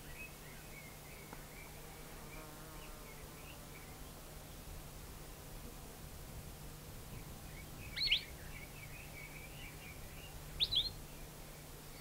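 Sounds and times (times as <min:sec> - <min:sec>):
soft bird twittering: 0:07.5 - 0:11.3.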